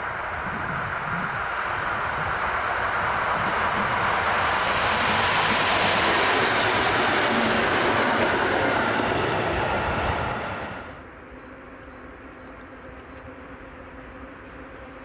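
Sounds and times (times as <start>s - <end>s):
train passing: 0.0s - 11.1s.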